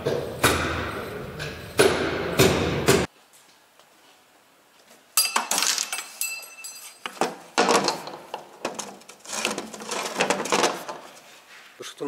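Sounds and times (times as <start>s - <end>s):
metal clinking and clattering: 5.2s - 11.0s.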